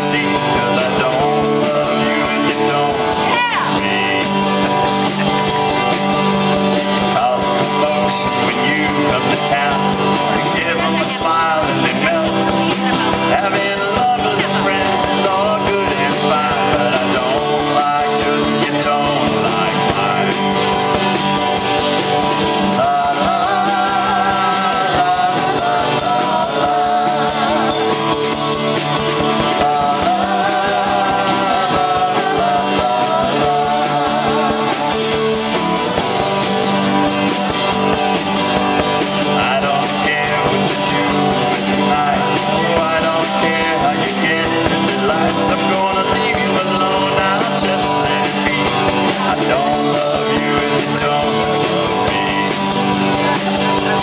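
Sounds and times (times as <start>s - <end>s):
drum kit steady beat: 0.0s - 54.0s
strummed acoustic guitar: 0.0s - 54.0s
woman singing with vibrato: 2.9s - 4.2s, 22.8s - 28.1s, 29.6s - 36.0s.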